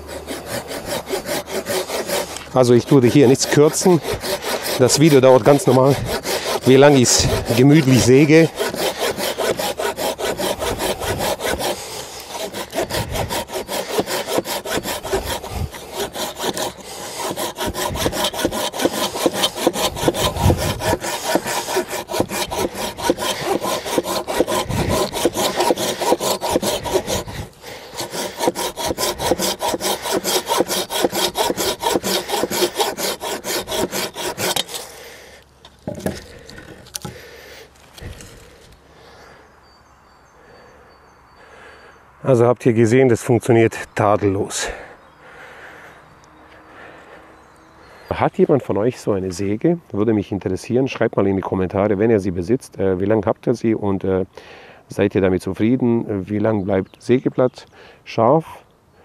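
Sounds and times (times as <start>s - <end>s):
handsaw sawing through wood: 0.0s - 35.0s.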